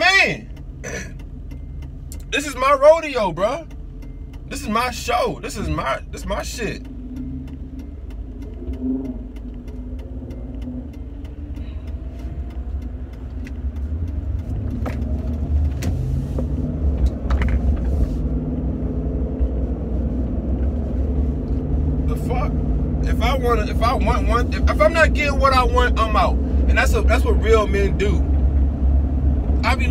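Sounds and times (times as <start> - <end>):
car engine and road noise: 0.0 - 29.9
light regular ticks: 3.6 - 4.5, 6.6 - 15.8.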